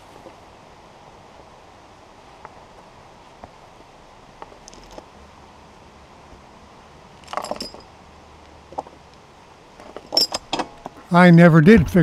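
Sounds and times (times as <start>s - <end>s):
metal chain clinking and rattling: 7.2s - 8.0s, 9.8s - 10.9s.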